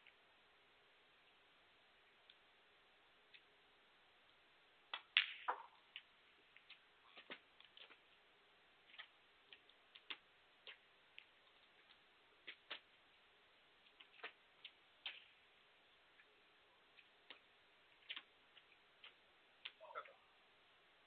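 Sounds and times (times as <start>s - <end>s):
ball dropping into pocket: 4.9s - 5.8s.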